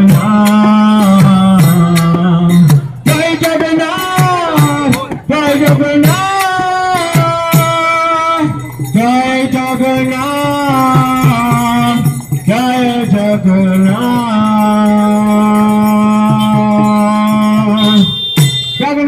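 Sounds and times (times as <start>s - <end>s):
man singing chant into microphone: 0.0s - 18.2s
barrel drum beating: 15.9s - 19.0s.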